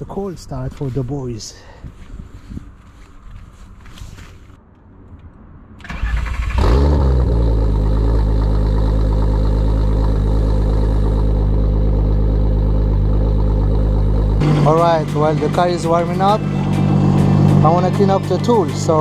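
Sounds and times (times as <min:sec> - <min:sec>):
engine rev flare: 0:05.8 - 0:19.0
engine fast idle: 0:05.9 - 0:18.6.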